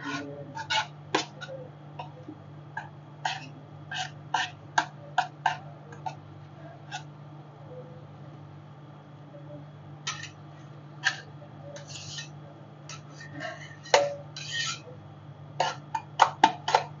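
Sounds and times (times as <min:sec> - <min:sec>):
metal spatulas tapping and scraping: 0:00.0 - 0:06.2, 0:10.1 - 0:10.4, 0:11.0 - 0:14.9, 0:15.6 - 0:17.0.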